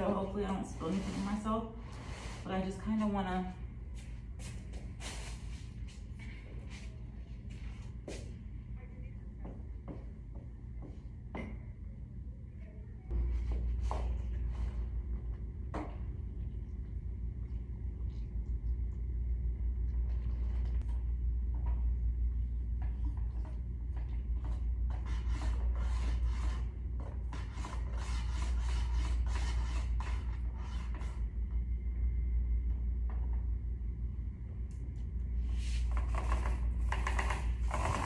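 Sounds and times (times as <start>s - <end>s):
paint applicator rubbing on wall: 0.0s - 2.8s, 24.4s - 31.2s
steady low rumble: 0.0s - 38.0s.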